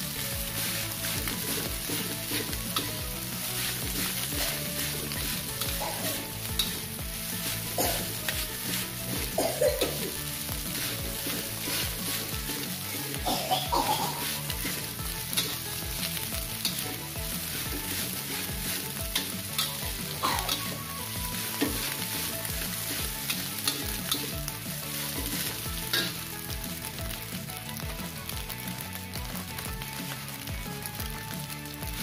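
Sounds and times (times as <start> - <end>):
metal spatula scraping a wok: 0.0 - 13.2, 14.1 - 26.4
rice sizzling in a wok: 0.0 - 32.0.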